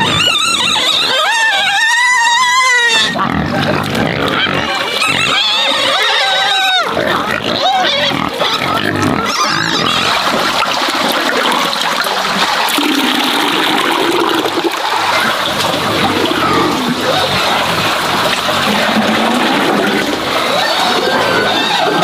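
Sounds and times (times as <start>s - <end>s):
pigs squealing: 0.0s - 11.8s, 12.4s - 22.0s
liquid splashing in a bucket: 9.0s - 22.0s.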